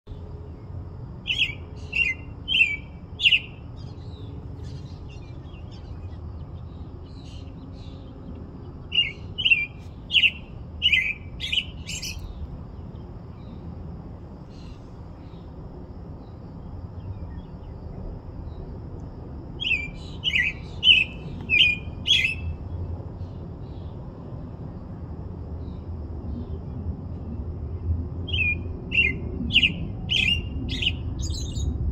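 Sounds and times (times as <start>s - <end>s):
low background rumble: 0.1s - 31.9s
robin singing: 1.2s - 13.6s, 19.6s - 22.6s, 28.3s - 31.8s.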